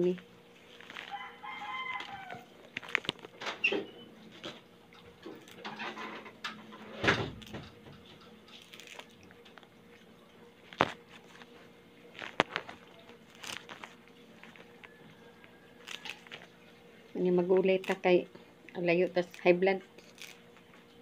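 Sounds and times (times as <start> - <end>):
leaves rustling: 0.0 - 3.4, 10.7 - 15.0
stems snapping: 0.8 - 3.6, 8.5 - 9.7, 10.7 - 11.0, 12.2 - 14.9, 15.8 - 16.5, 17.7 - 18.1, 19.2 - 20.4.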